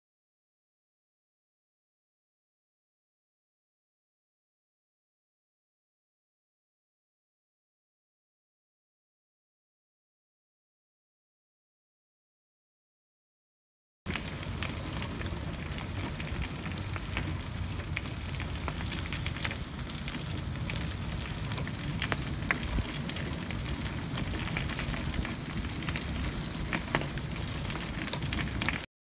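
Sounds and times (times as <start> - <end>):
wheelchair wheels crunching gravel: 14.1 - 28.9.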